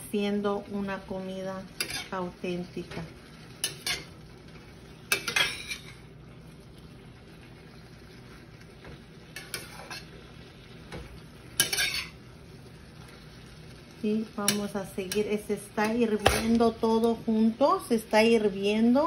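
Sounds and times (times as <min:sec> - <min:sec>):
stew bubbling and sizzling: 0:00.0 - 0:19.0
spoon clinking against pan: 0:11.6 - 0:12.1.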